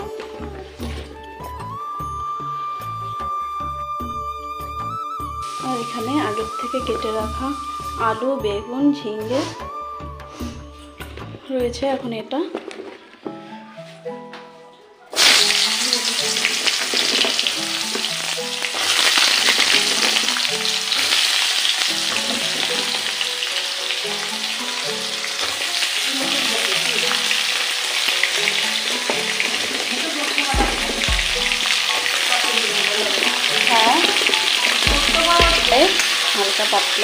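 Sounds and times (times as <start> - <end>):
vegetables sizzling in hot oil: 4.8 - 9.7, 15.1 - 37.0.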